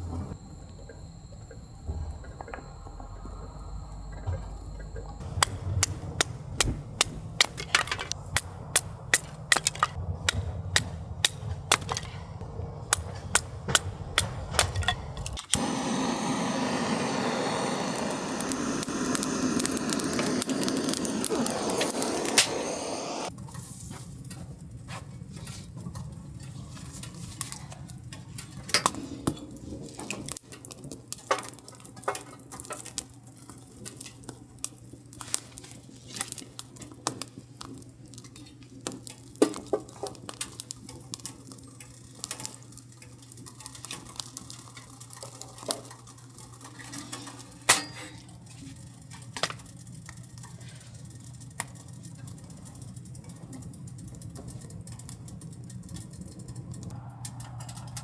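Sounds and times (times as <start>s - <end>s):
low steady hum: 0.0s - 23.3s
wood fire crackling: 0.0s - 58.0s
log fed into stove: 14.6s - 23.3s.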